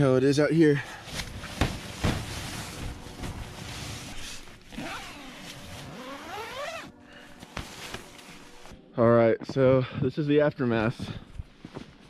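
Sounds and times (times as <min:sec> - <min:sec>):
handling knocks: 0:01.5 - 0:02.5
tent zipper being pulled open: 0:03.4 - 0:06.9.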